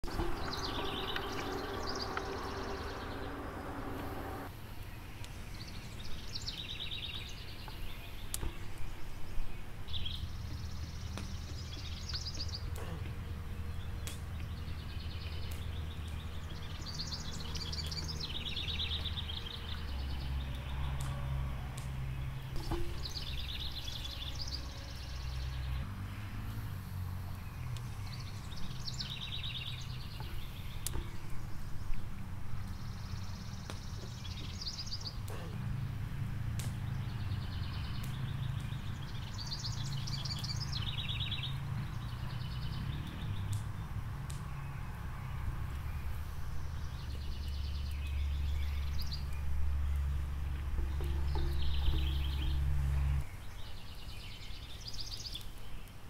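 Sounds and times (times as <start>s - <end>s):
pitched buzzing: 0.0s - 4.5s
low steady hum: 0.0s - 7.3s
songbirds trilling: 0.0s - 56.0s.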